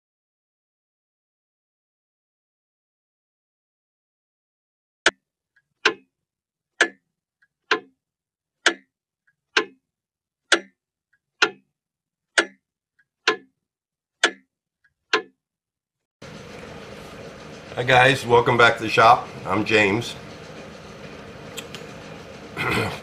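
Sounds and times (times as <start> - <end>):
clock ticking: 5.8 - 6.1, 6.8 - 8.0, 8.6 - 11.7, 12.3 - 13.6, 14.2 - 15.4.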